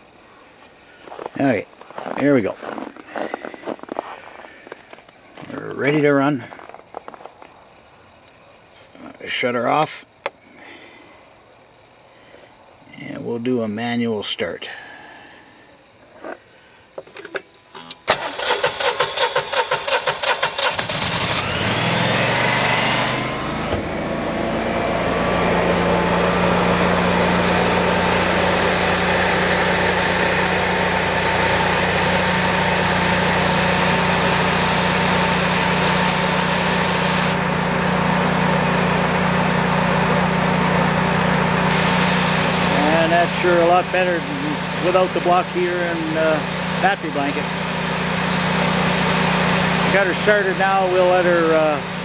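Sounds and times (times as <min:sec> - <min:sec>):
generator clicks: 0:17.0 - 0:19.6
generator engine running: 0:17.1 - 0:52.0
starter cranking: 0:17.2 - 0:22.6.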